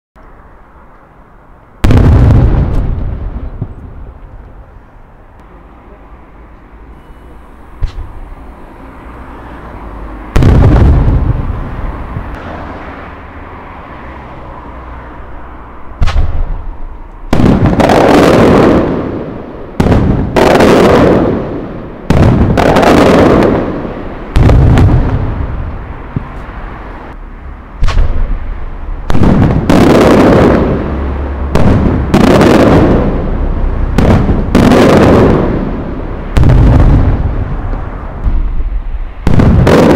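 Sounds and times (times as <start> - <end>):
firework shells booming: 1.8 - 4.4, 7.6 - 8.3, 10.3 - 12.5, 16.0 - 26.4, 27.8 - 39.9.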